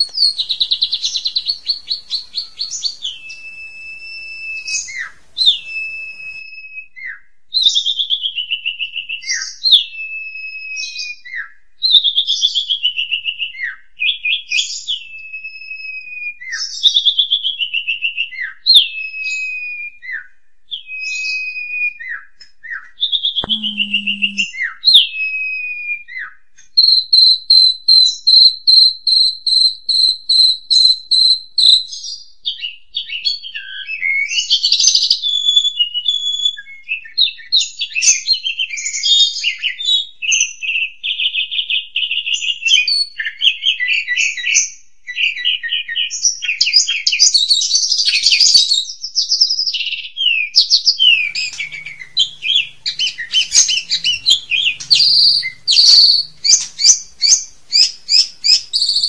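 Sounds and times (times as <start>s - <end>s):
starling singing: 0.0s - 6.4s, 23.4s - 24.6s, 51.0s - 59.0s.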